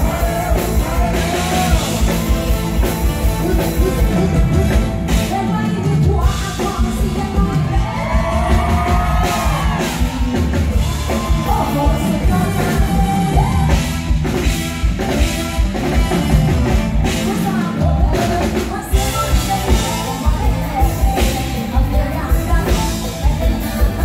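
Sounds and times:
drum beat: 0.0s - 5.4s, 6.5s - 17.3s
live band playing: 0.0s - 24.0s
woman singing: 5.1s - 9.9s, 11.1s - 13.9s, 16.9s - 24.0s.

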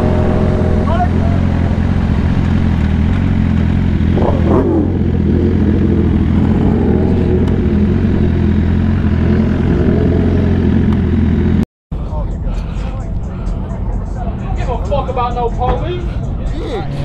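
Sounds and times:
motorbike engine idling: 0.0s - 17.0s.

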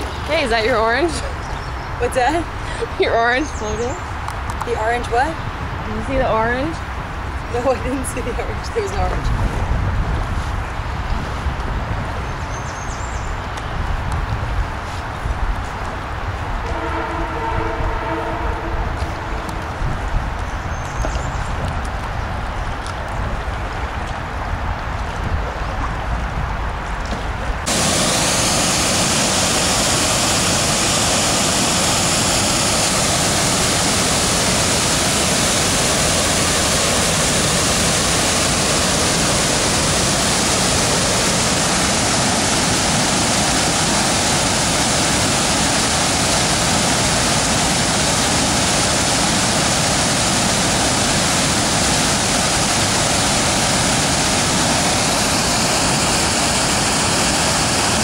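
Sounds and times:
water rushing over a weir: 27.3s - 58.0s.

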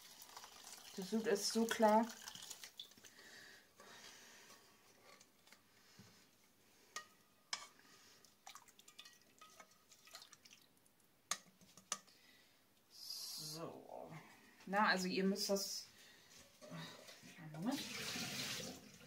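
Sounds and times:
broth trickling through sieve: 0.0s - 3.1s, 8.4s - 10.7s
liquid dripping: 0.0s - 3.1s, 8.4s - 11.4s.

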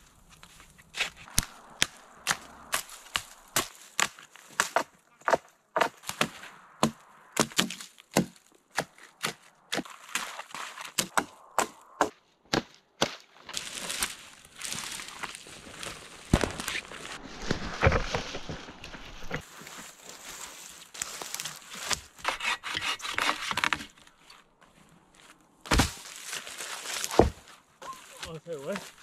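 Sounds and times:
hatchet chopping wood: 1.0s - 13.2s, 25.7s - 26.0s, 27.0s - 27.4s.

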